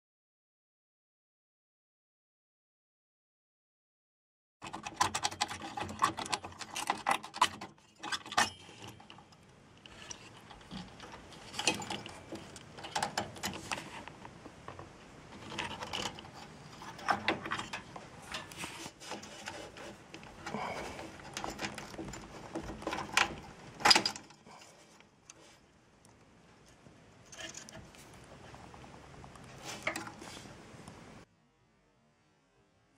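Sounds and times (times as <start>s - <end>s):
cpu cooler clicks and rattles: 4.6s - 24.7s.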